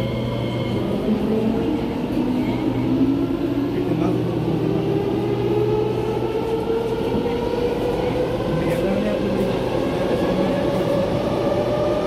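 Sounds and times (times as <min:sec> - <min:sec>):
train traction motor whine: 0:00.0 - 0:04.2
train car rumble: 0:00.0 - 0:12.0.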